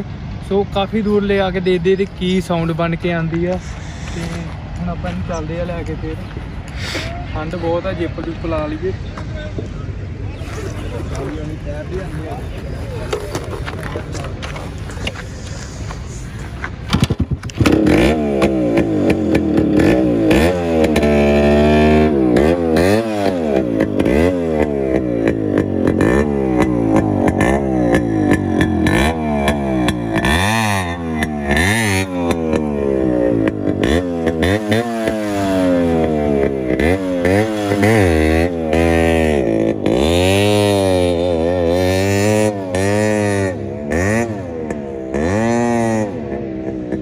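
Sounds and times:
exhaust pops: 13.1 - 35.4
motorcycle engine revving: 16.8 - 47.0.

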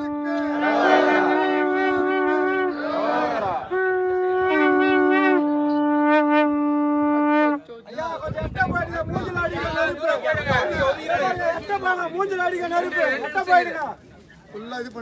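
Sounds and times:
conch shells blown: 0.0 - 7.7
crowd shouting: 0.3 - 3.7.

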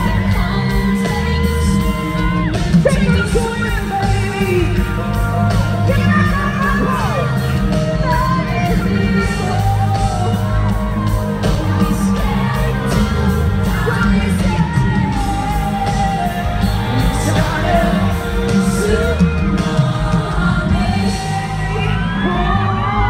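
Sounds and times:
amplified pop music with heavy bass: 0.0 - 23.0
crowd shouting and whooping: 0.0 - 23.0
lead singer singing: 0.0 - 23.0.

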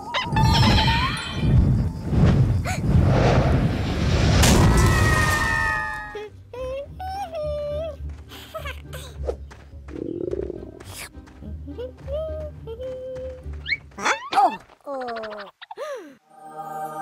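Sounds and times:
light music: 5.6 - 14.5.

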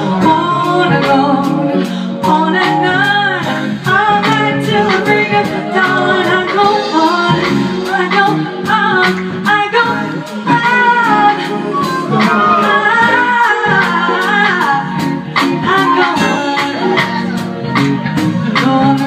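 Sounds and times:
drums steady beat: 0.0 - 19.0
person singing: 0.0 - 19.0
soul band playing: 0.0 - 19.0
flute melody: 10.6 - 14.7.

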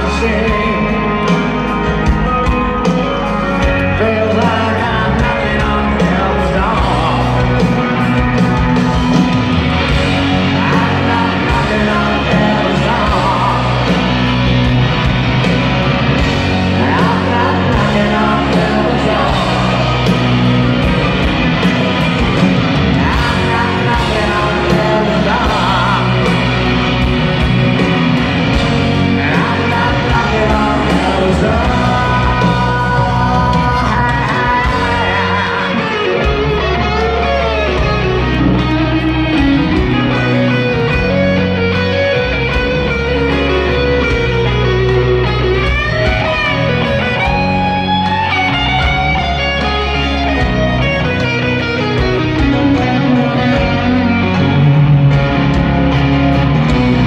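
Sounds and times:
man singing lead vocals: 0.0 - 9.1, 9.8 - 14.8, 16.2 - 27.4, 28.5 - 42.3
rock band playing live: 0.0 - 57.0.

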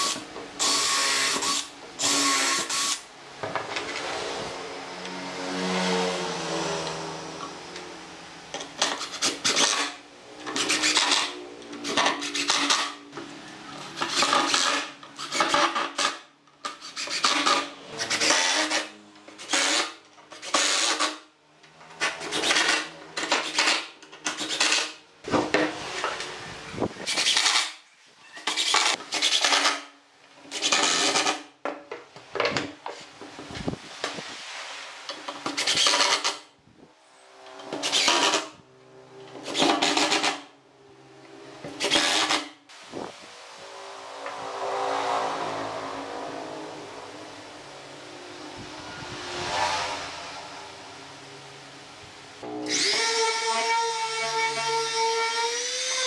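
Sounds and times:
impact driver driving screws into wood: 37.7 - 38.5, 39.4 - 40.4, 41.7 - 42.6.

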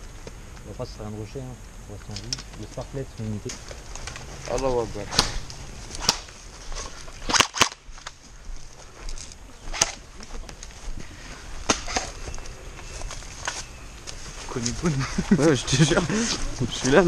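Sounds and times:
airsoft rifle shots cracking: 5.1 - 6.4, 7.2 - 7.8.

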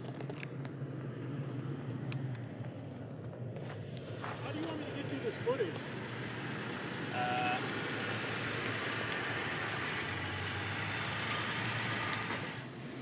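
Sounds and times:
vehicle driving off on dirt: 4.1 - 13.0.

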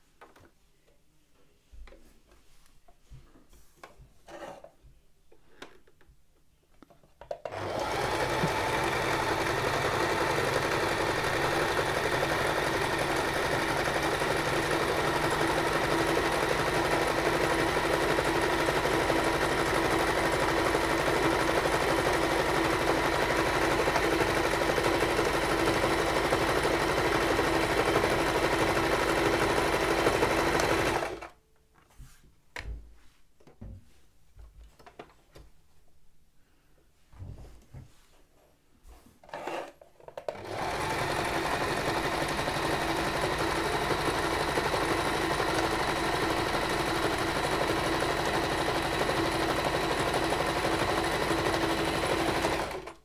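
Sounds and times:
sewing machine stitching: 7.4 - 31.4, 39.2 - 53.0.

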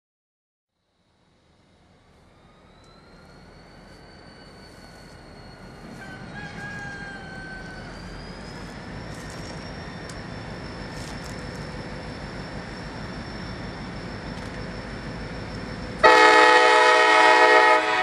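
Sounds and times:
diesel locomotive rumble and whine: 0.8 - 18.0
rooster crowing: 5.9 - 8.1.

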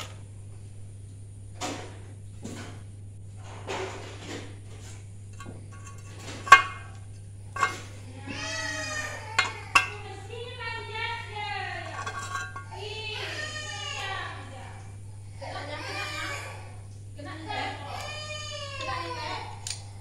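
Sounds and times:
metal parts clinking and knocking: 5.4 - 7.9, 9.4 - 10.0, 11.8 - 12.7.

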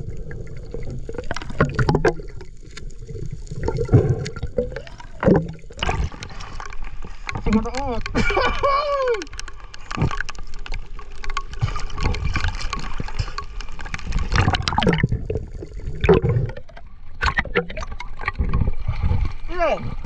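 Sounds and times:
water gurgling and splashing: 0.0 - 20.0
small clicks and knocks: 5.2 - 14.9.

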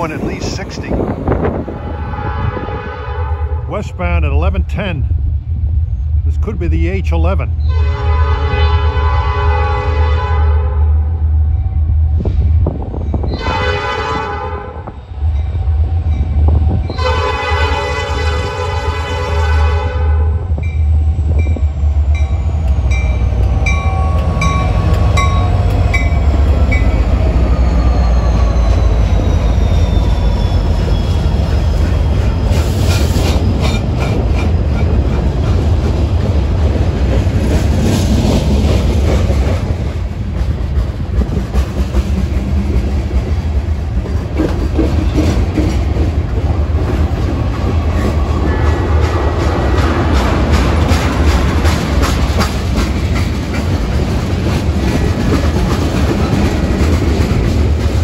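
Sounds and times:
diesel train rumbling: 0.0 - 58.0
train wheels clattering over rails: 22.1 - 58.0.

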